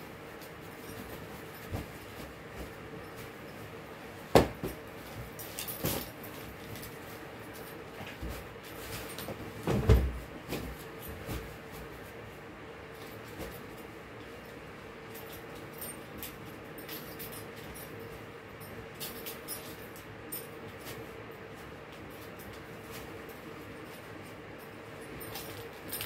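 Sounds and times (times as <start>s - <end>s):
faint steady hum: 0.0s - 26.0s
fabric rustling: 0.3s - 12.4s
bedding thumps: 0.8s - 3.4s, 4.2s - 6.2s, 8.0s - 12.0s.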